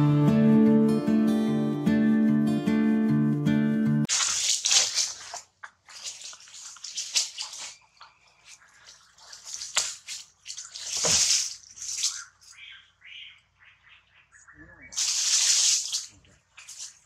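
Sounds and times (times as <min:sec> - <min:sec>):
dry leaves rustling: 0:04.1 - 0:12.7, 0:15.0 - 0:17.0.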